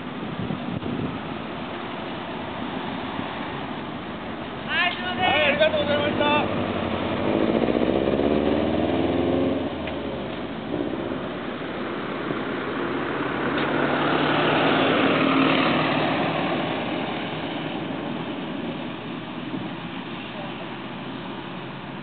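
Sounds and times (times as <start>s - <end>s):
bus engine accelerating: 0.0s - 22.0s
car driving past: 5.2s - 22.0s.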